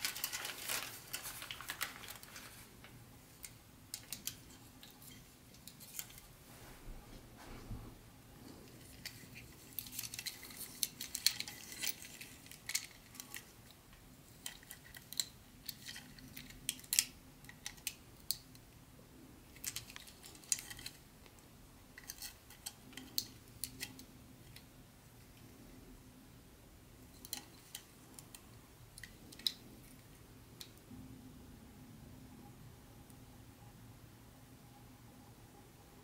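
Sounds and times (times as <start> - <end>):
small plastic items rattling: 0.0 - 2.6.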